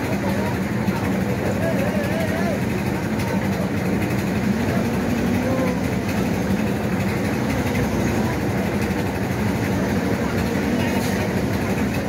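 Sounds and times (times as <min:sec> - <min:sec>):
engine running with low hum: 0:00.0 - 0:12.0.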